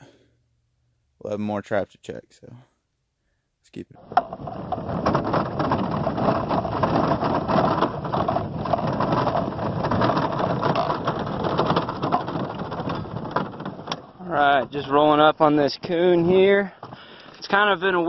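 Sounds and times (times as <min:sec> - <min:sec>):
utility vehicle engine running: 0:04.0 - 0:14.9
body rattling over bumps: 0:04.0 - 0:18.0.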